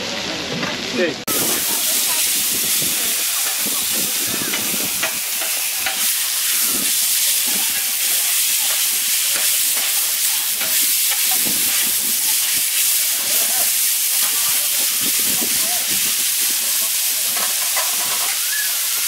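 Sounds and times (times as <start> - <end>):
meat sizzling on a griddle: 0.0 - 19.0
metal spatulas scraping griddle: 1.5 - 14.4, 16.8 - 18.7.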